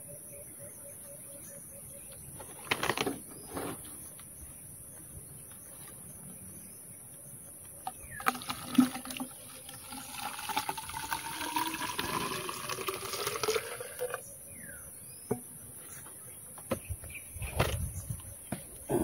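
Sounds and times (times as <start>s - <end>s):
liquid pouring into bamboo tube: 7.8s - 14.2s.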